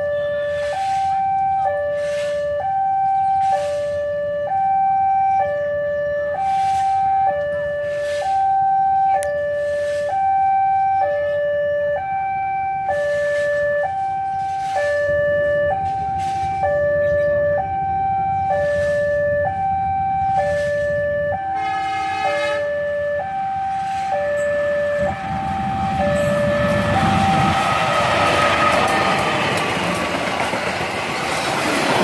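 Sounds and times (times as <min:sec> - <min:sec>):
train horn: 0:00.0 - 0:01.2, 0:06.4 - 0:07.1, 0:18.7 - 0:19.2, 0:20.4 - 0:23.0, 0:23.7 - 0:29.3
level crossing two-tone alarm: 0:00.0 - 0:29.3
low rumble: 0:24.8 - 0:31.1.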